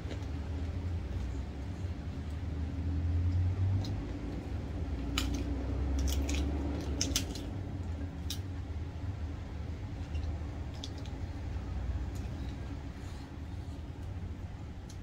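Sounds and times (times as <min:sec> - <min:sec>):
steady low hum: 0:00.0 - 0:15.0
cabbage leaves crackling torn: 0:05.1 - 0:07.6.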